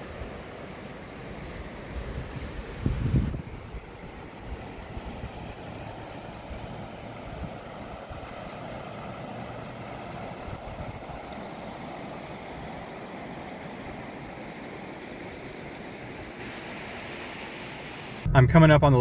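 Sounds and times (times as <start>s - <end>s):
flooded creek rushing over rapids: 3.6s - 18.3s.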